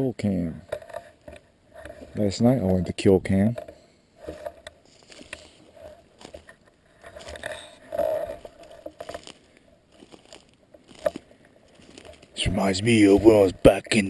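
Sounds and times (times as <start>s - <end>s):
footsteps crunching through leaves: 4.8s - 13.5s.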